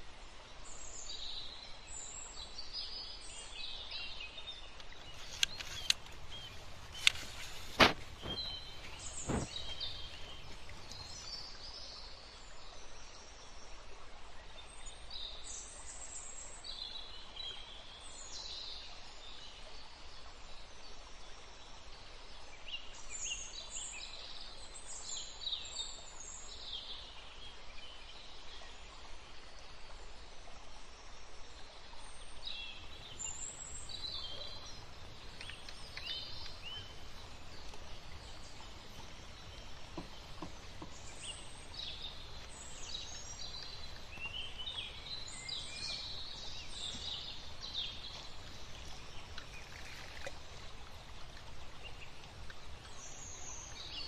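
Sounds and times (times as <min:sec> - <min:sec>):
outdoor background hiss: 0:00.0 - 0:54.0
small birds chirping: 0:02.3 - 0:12.0, 0:32.1 - 0:54.0.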